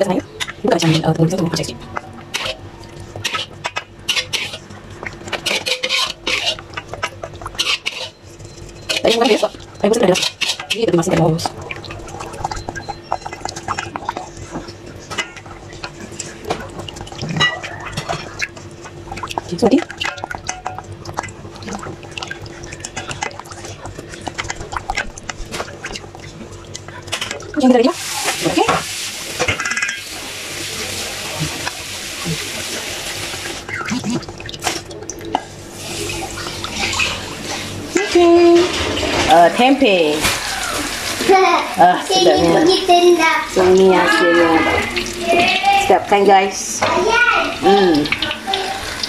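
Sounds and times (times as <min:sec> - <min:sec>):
liquid sloshing: 0:00.0 - 0:49.0
spoon scraping metal bowl: 0:02.3 - 0:04.7, 0:05.3 - 0:06.9, 0:07.5 - 0:10.9.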